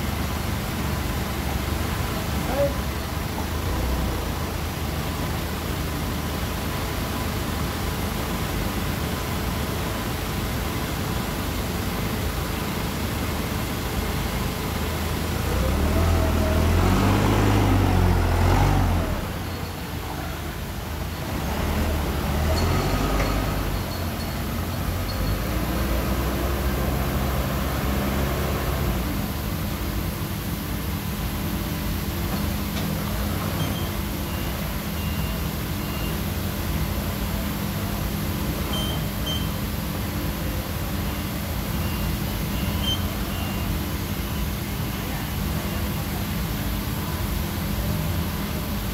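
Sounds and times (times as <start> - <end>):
forklift engine idling and revving: 0.0 - 48.9
faint short high beeps: 38.7 - 39.6.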